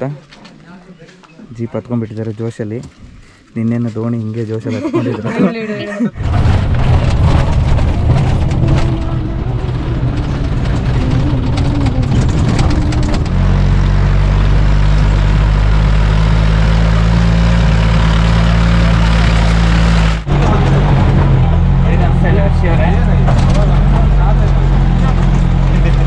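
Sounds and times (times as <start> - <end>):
cabin rattling and knocking: 6.2 - 13.3
car engine running: 6.2 - 26.0.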